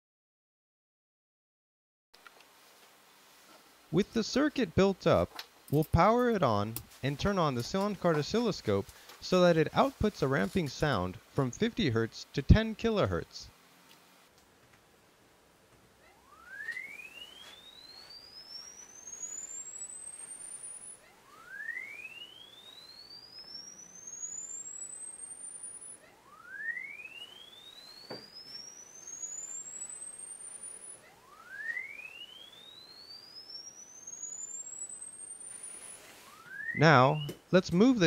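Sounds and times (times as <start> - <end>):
sine tone sweeping upward: 16.0 - 37.4.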